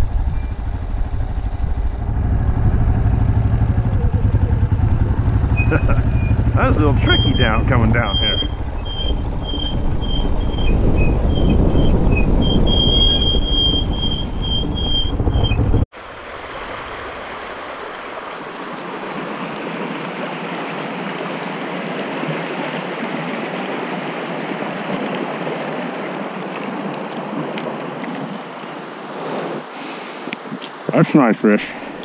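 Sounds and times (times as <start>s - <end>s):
dirt bike engine rumbling: 0.0s - 15.9s
high squeal: 3.6s - 15.8s
creek rushing over rocks: 15.9s - 32.0s.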